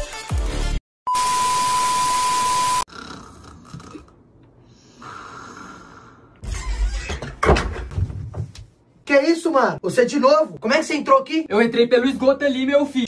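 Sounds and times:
person snoring faintly: 2.9 - 6.4.

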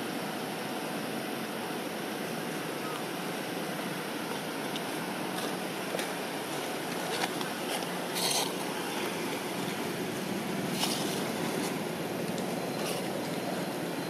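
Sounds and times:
rushing outdoor background noise: 0.0 - 14.0
dry leaves rustling: 4.3 - 10.1.

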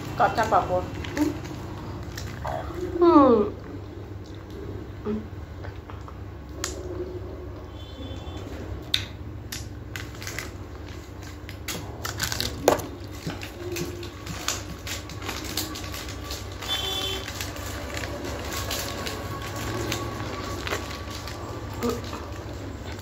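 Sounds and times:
plastic wrapper crinkling: 0.0 - 2.9, 9.8 - 23.0.

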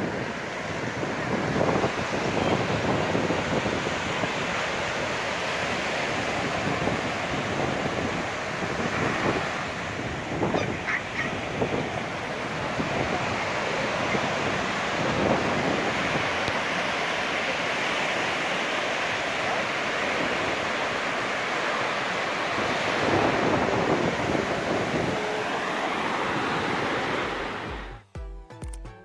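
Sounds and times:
sea waves breaking on beach: 0.0 - 28.0.

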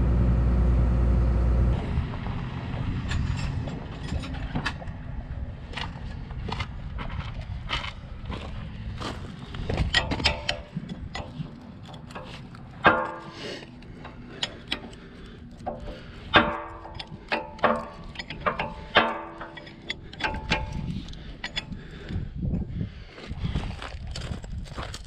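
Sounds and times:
wrenches clinking on metal bolt: 9.7 - 22.0.

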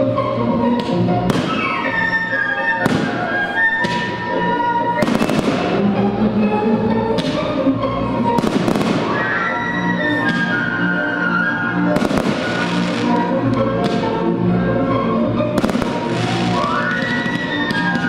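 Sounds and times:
music playing: 0.0 - 18.0
firework shells bursting: 12.0 - 14.1, 15.6 - 18.0.

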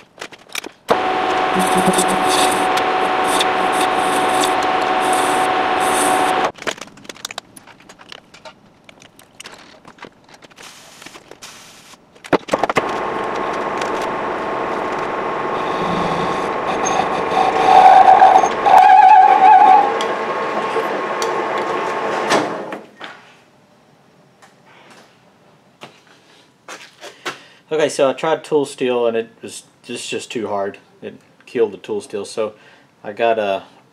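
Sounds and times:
metal lathe running: 0.9 - 6.5, 12.8 - 22.7
tool squealing on shaft: 1.3 - 6.3, 15.7 - 20.8.

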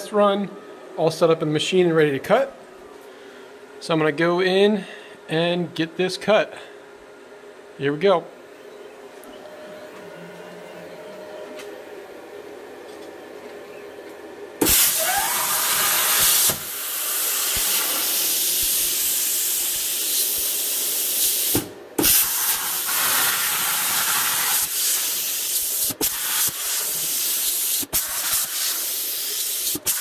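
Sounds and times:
plasma cutter hissing: 14.6 - 30.0.

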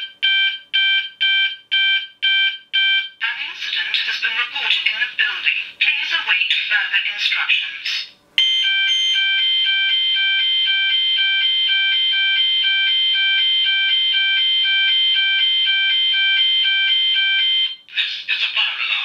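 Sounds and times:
two-tone alarm warble: 8.4 - 17.8.

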